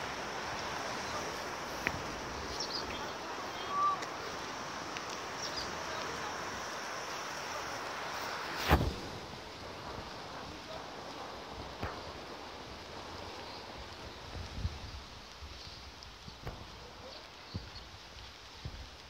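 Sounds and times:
wind-like noise: 0:00.0 - 0:19.0
sharp thump: 0:08.6 - 0:09.0.

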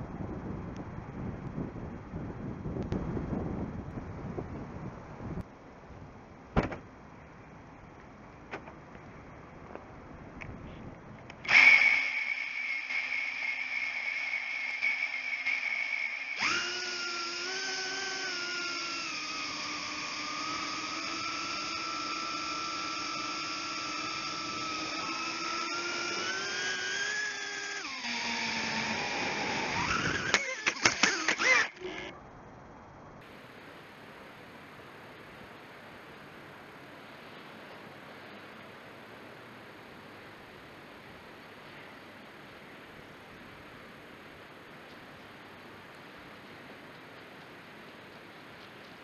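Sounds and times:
quadcopter motors whining: 0:11.3 - 0:32.2.

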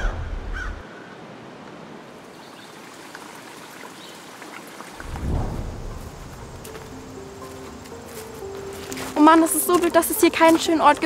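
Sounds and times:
low rumble: 0:05.0 - 0:07.5
even hiss of air: 0:05.0 - 0:08.4.

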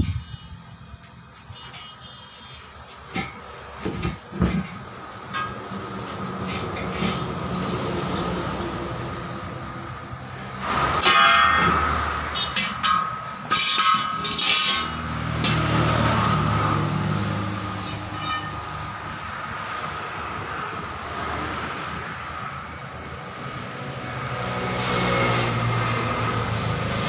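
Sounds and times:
sharp metallic clanks: 0:04.1 - 0:05.8, 0:10.6 - 0:16.7, 0:17.5 - 0:19.0.

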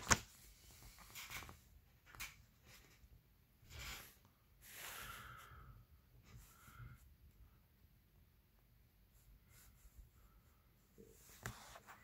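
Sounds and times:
paper page flipping: 0:00.0 - 0:02.4.

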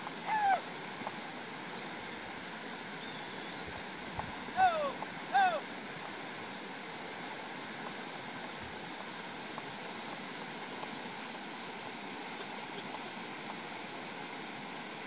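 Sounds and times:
rushing hiss of outdoor noise: 0:00.0 - 0:15.0
faint ticks: 0:01.0 - 0:01.2, 0:07.8 - 0:11.1.

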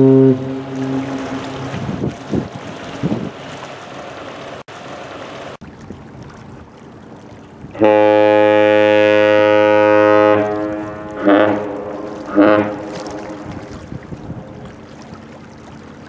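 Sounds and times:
deep ship horn blast: 0:00.0 - 0:02.0, 0:07.7 - 0:13.9
water noise: 0:00.0 - 0:16.0
wind: 0:00.0 - 0:16.0.

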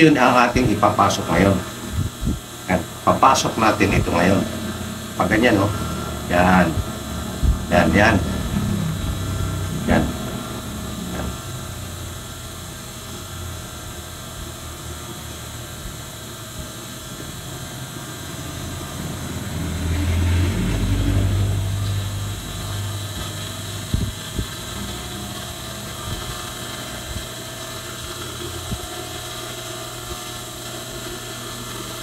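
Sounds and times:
sewing machine motor humming: 0:02.7 - 0:12.6
low rumble: 0:04.5 - 0:12.0.

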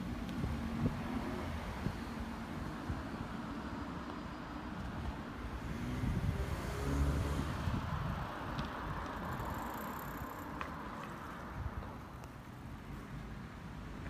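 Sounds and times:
wind on microphone: 0:00.0 - 0:03.3, 0:05.5 - 0:10.3
passing vehicle rumble: 0:05.4 - 0:10.6.

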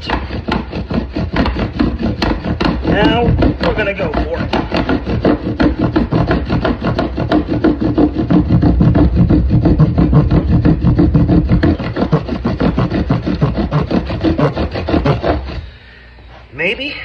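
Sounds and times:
bow drill wooden rubbing: 0:00.0 - 0:15.8.

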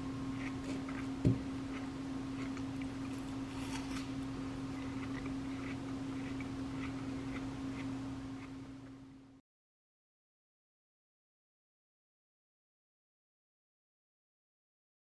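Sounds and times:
electrical hum: 0:00.0 - 0:09.4
dull knock: 0:01.2 - 0:01.4.

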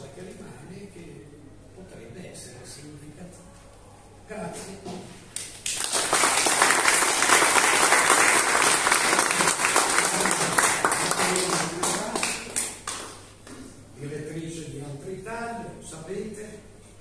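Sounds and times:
audience applauding: 0:05.6 - 0:13.2.

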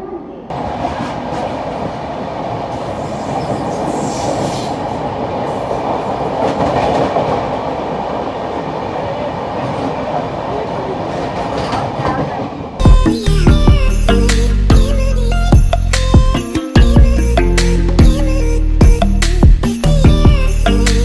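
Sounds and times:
train passing at speed: 0:00.0 - 0:12.8.

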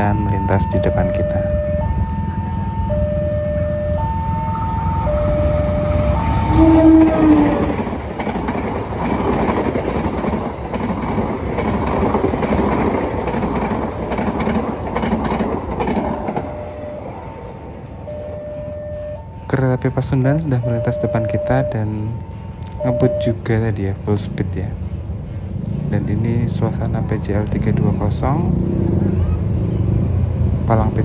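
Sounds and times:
level crossing alarm two-tone: 0:00.0 - 0:07.0, 0:16.4 - 0:19.6, 0:20.4 - 0:23.5
train rumbling over rails: 0:00.0 - 0:31.0
train horn blast: 0:05.4 - 0:07.8.

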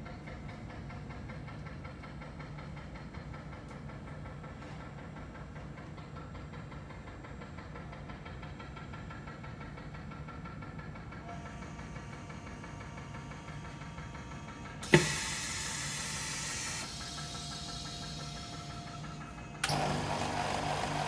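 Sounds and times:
pump humming: 0:11.2 - 0:21.0.

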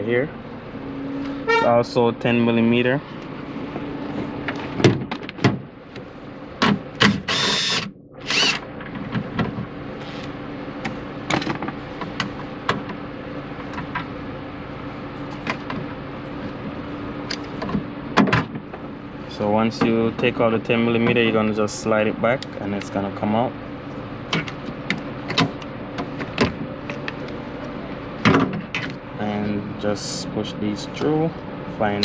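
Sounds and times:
power tool whirring: 0:07.0 - 0:08.6.

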